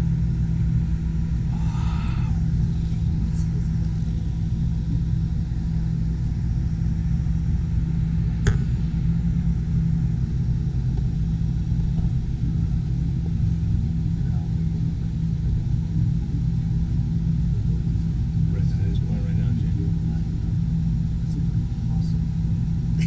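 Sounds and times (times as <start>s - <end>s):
ferris wheel gondola rumble and hum: 0.0s - 23.0s
sharp click: 8.4s - 8.8s.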